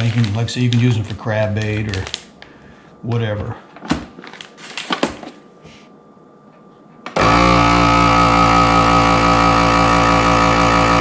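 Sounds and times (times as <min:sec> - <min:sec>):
vacuum pump running: 0:07.0 - 0:11.0.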